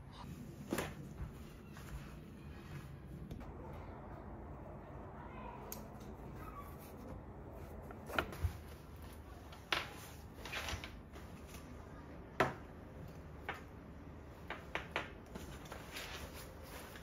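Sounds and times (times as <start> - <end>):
cloth rustling: 15.3 - 17.0.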